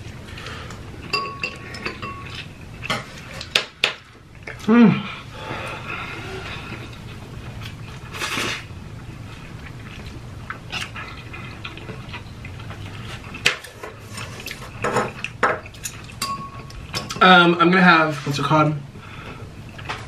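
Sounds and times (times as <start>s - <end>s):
utensils clinking on metal tray: 14.8s - 17.2s.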